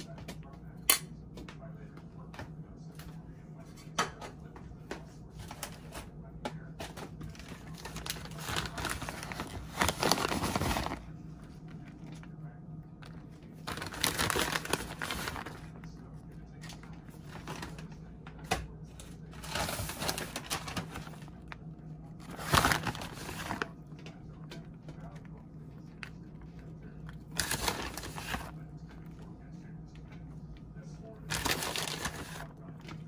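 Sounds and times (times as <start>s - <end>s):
steady low hum: 0.0s - 33.0s
plastic bag crinkling: 7.3s - 11.1s, 13.1s - 15.7s, 16.8s - 18.0s, 19.4s - 21.6s, 22.2s - 23.7s, 27.2s - 28.5s, 31.3s - 33.0s.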